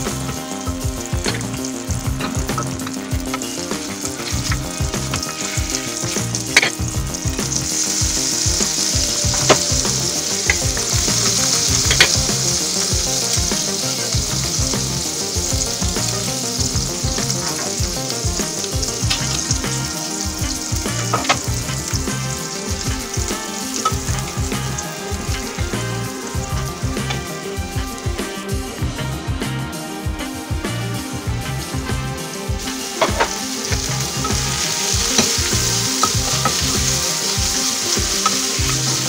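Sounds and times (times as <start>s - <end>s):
food sizzling in butter: 0.0s - 39.0s.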